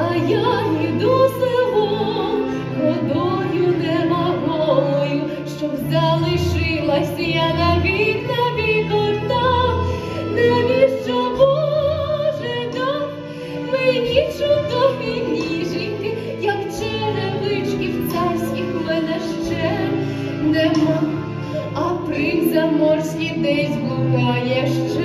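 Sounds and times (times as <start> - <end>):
instrumental accompaniment: 0.0 - 25.0
woman singing with vibrato: 0.0 - 25.0.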